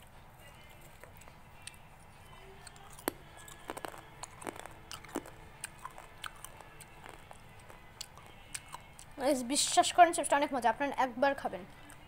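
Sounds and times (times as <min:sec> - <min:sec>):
low steady hum: 0:00.0 - 0:12.0
snack chips crunching: 0:00.9 - 0:09.2.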